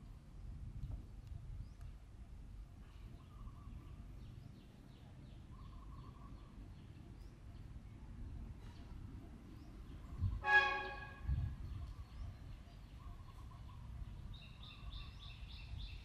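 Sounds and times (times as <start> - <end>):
low wind rumble: 0.0 - 16.0
faint bird chirps: 2.7 - 16.0
short honk-like tone: 10.4 - 11.4.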